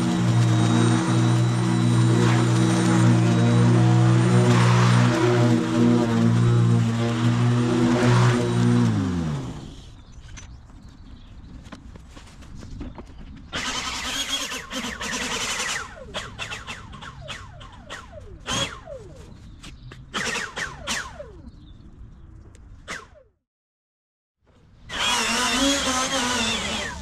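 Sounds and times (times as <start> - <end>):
leaf blower motor whine: 0.0 - 10.0, 13.6 - 19.5, 24.9 - 27.0.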